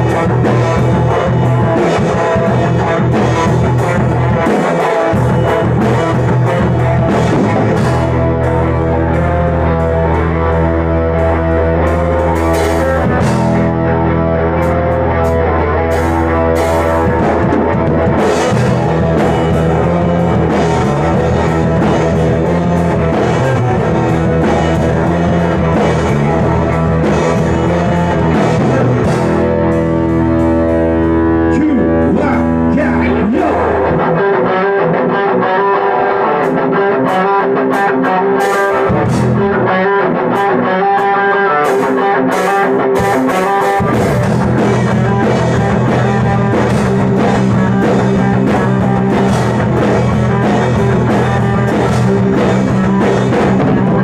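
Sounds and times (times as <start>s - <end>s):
drum kit with cymbals: 0.0s - 13.9s, 14.6s - 34.0s, 36.4s - 39.6s, 40.3s - 54.0s
deep bass: 0.0s - 34.5s, 38.8s - 40.4s, 42.9s - 54.0s
electric guitars: 0.0s - 54.0s
person singing: 31.4s - 44.2s.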